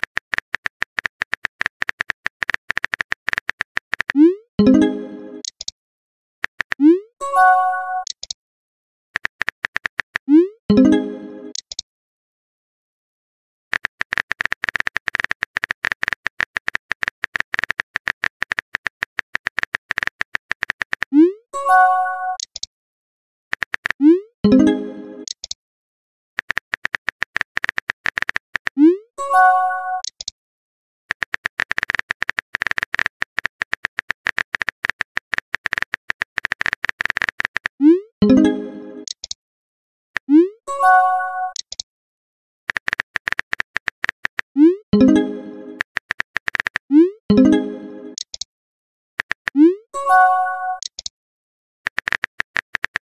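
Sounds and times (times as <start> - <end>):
phone keyboard typing clicks: 0.0 - 4.7, 5.4 - 5.7, 6.4 - 6.9, 8.0 - 8.4, 9.2 - 10.3, 11.5 - 11.8, 13.7 - 21.2, 22.4 - 22.7, 23.5 - 24.0, 25.2 - 25.6, 26.4 - 28.8, 30.0 - 30.3, 31.1 - 39.4, 41.5 - 41.8, 42.7 - 48.5, 49.2 - 49.6, 50.7 - 51.1, 51.9 - 53.0.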